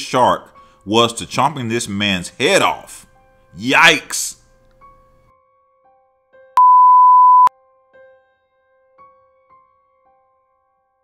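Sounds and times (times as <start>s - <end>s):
electronic beep: 6.6s - 7.5s.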